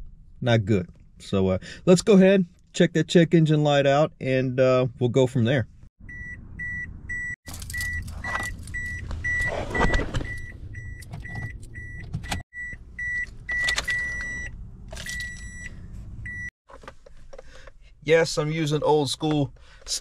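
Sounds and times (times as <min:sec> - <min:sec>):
car warning chime beeping: 0:06.0 - 0:16.5.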